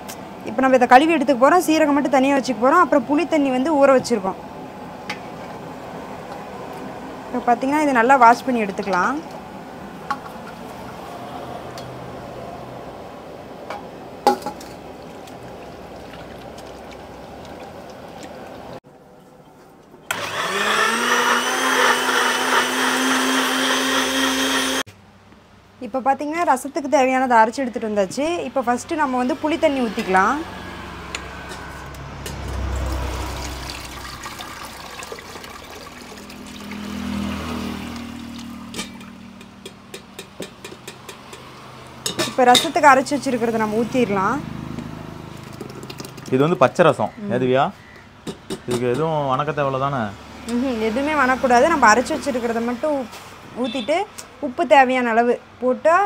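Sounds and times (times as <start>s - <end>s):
water splashing in a vessel: 14.8s - 18.8s, 32.5s - 39.2s, 45.3s - 46.5s.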